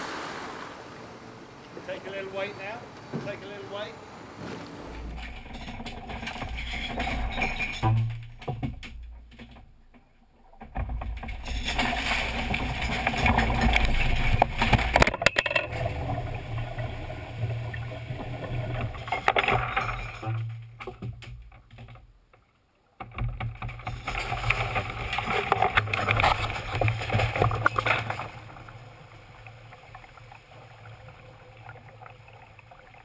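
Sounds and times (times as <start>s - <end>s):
rushing noise: 0.0s - 2.1s.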